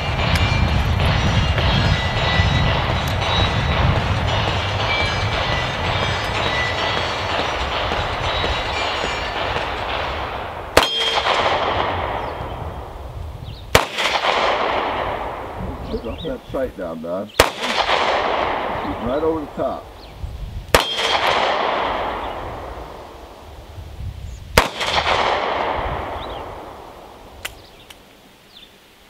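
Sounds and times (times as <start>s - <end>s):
loud steady rushing noise: 0.0s - 23.6s
handgun shots: 10.8s - 12.2s, 17.4s - 18.8s, 20.8s - 22.0s.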